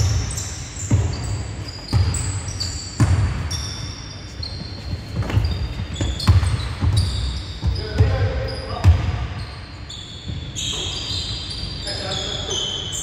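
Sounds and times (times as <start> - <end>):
sneakers squeaking on floor: 0.0 - 13.0
basketball bouncing on hardwood: 1.9 - 2.3, 3.0 - 3.5, 5.2 - 9.2.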